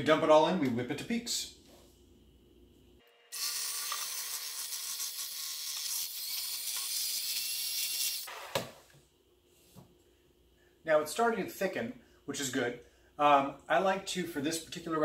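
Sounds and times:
electric hand mixer whirring: 3.3s - 8.6s.

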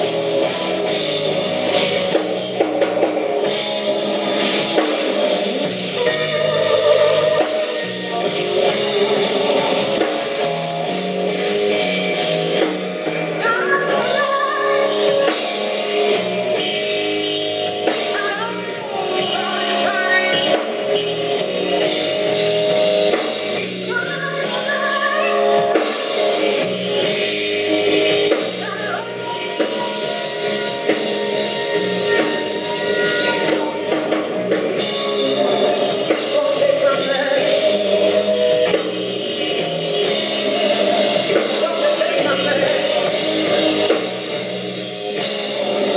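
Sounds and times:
bass guitar: 0.0s - 45.9s
drum kit: 0.0s - 45.9s
electric guitar: 0.0s - 45.9s
woman singing: 6.0s - 9.8s, 13.4s - 15.6s, 17.9s - 20.8s, 23.9s - 26.3s, 28.5s - 34.2s.

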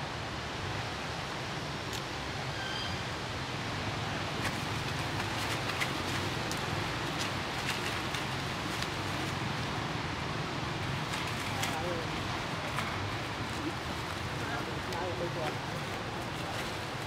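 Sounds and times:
outdoor background hiss: 0.0s - 17.0s
light crackles: 4.2s - 17.0s.

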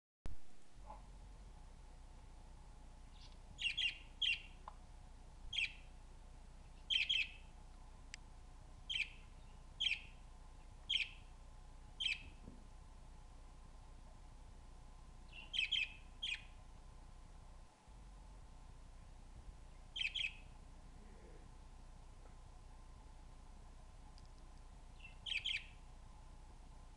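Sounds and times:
budgerigar chirping: 3.1s - 4.6s, 5.5s - 5.9s, 6.9s - 7.4s, 8.9s - 9.2s, 9.8s - 10.2s, 10.9s - 11.2s, 12.0s - 12.3s, 15.3s - 16.5s, 20.0s - 20.5s, 25.0s - 25.8s.

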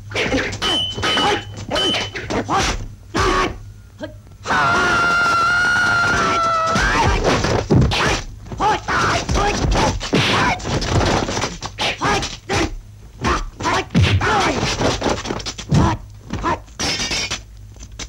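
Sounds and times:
fighters shouting and grunting: 0.1s - 3.6s, 6.1s - 10.7s, 11.8s - 14.7s, 15.7s - 16.7s
punch and kick whacks: 13.9s - 14.8s.

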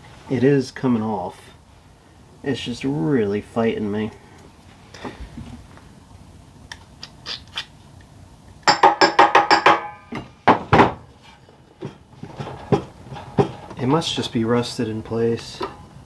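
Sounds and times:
hammer striking metal: 8.7s - 10.6s.

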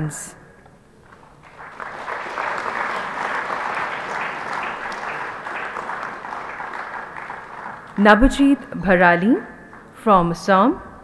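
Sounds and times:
audience applauding: 1.0s - 8.5s.

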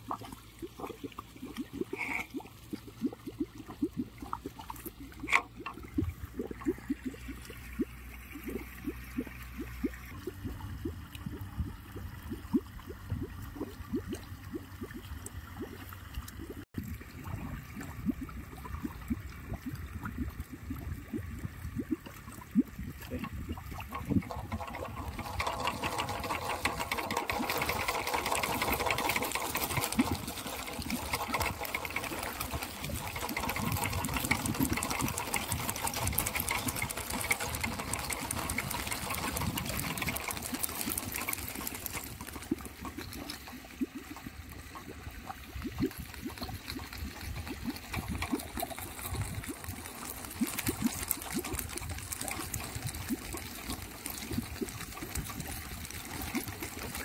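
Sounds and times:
bottle windmill rattling: 0.7s - 11.4s, 22.0s - 45.0s, 45.6s - 57.0s.

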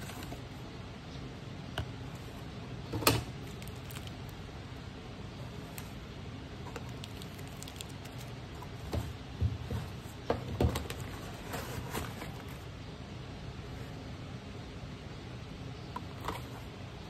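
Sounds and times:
steady low hum: 0.0s - 17.0s
cardboard packaging crinkling: 3.3s - 4.5s, 6.6s - 9.0s.

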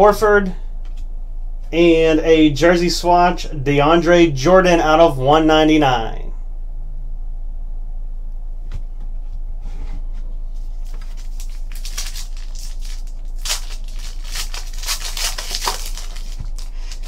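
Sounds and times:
low electrical hum: 0.0s - 17.0s
foil wrapper crinkling and tearing: 10.7s - 17.0s.

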